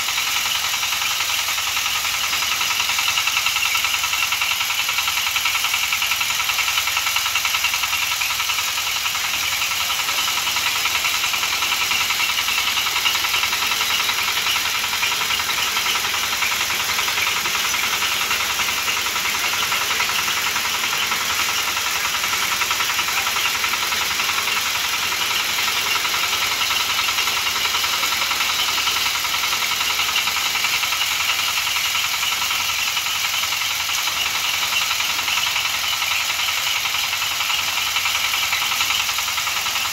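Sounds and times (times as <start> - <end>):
threshing machine running: 0.0 - 39.9.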